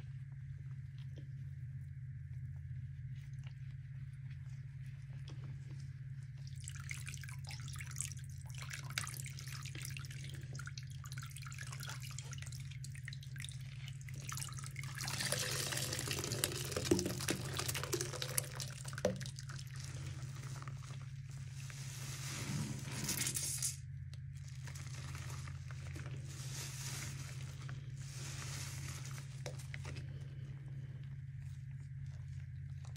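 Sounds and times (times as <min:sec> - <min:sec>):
wet sponges squelching: 0:02.5 - 0:23.0, 0:24.1 - 0:32.9
liquid dripping and streaming: 0:06.4 - 0:21.5.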